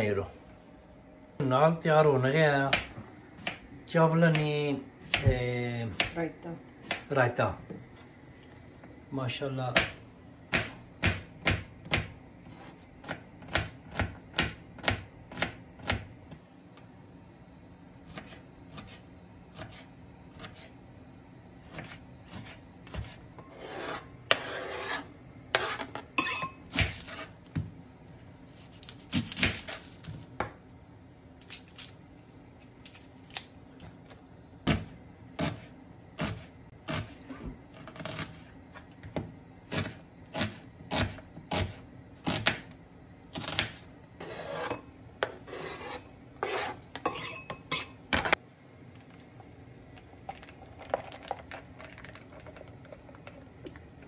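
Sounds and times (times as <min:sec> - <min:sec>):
knife scraping on board: 0:21.8 - 0:27.3, 0:43.4 - 0:48.4.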